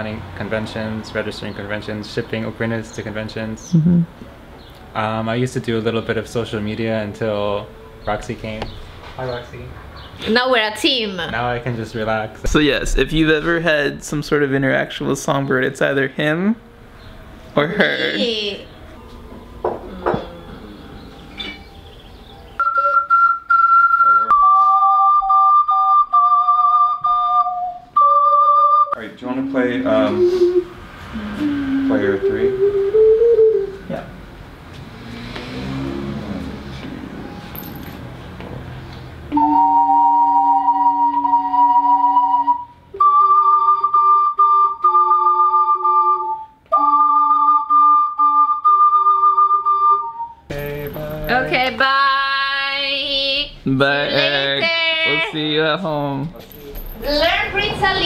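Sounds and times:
ocarinas playing a duet: 22.5 - 34.1, 39.3 - 55.4.

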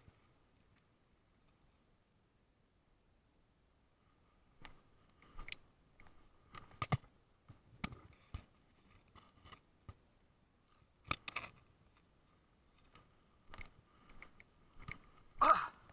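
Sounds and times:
camera handling clicks and rustles: 4.6 - 7.1, 10.8 - 12.1.

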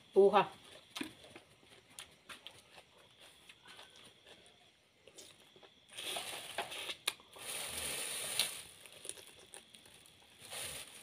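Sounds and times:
chewing and crunching crab: 0.6 - 5.9, 8.8 - 10.2.

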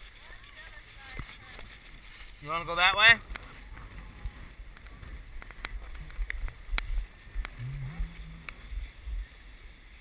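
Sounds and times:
wind rumble: 3.1 - 10.0
microphone handling noise: 3.2 - 9.3.

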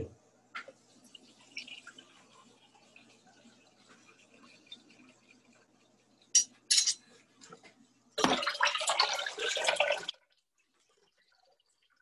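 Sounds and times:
tap running water: 0.5 - 12.0.

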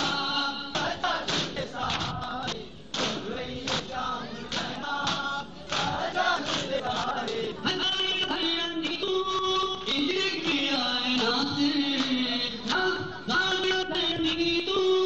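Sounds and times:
people striking their chests: 0.0 - 7.5
man singing a lament: 6.8 - 15.0.

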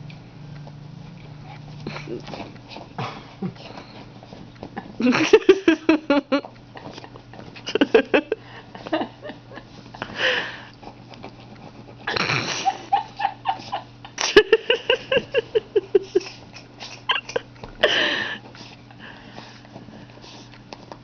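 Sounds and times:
dog scratching at blanket: 1.4 - 3.0, 3.7 - 5.0, 10.8 - 12.1.

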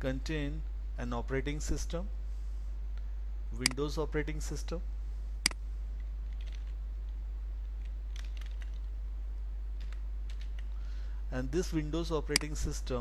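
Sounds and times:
keyboard keystrokes: 7.8 - 8.9, 9.8 - 10.7.

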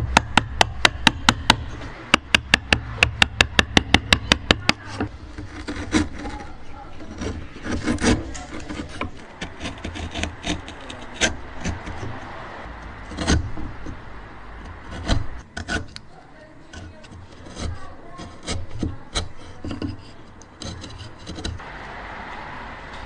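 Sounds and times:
sharp knocks on chisel: 0.0 - 5.1
chisel scraping and cracking wood: 0.0 - 21.7.

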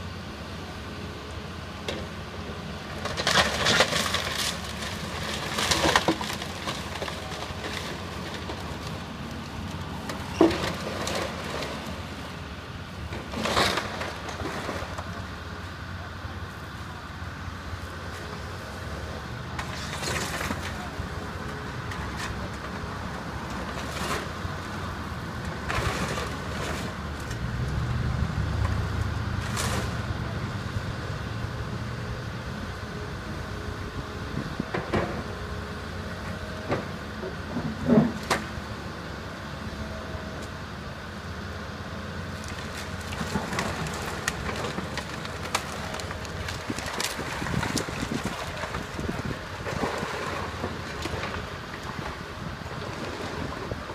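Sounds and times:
excavator diesel engine running: 0.0 - 53.9
lumber and sheet metal cracking: 42.5 - 50.3.

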